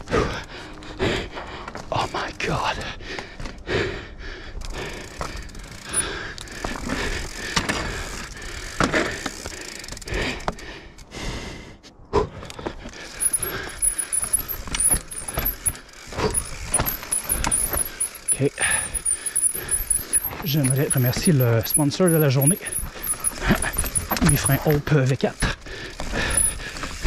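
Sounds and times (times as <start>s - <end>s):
bike chain and frame rattling: 0.2s - 11.1s, 12.6s - 27.0s
bike tyres rolling over rock: 4.7s - 10.6s, 12.7s - 27.0s.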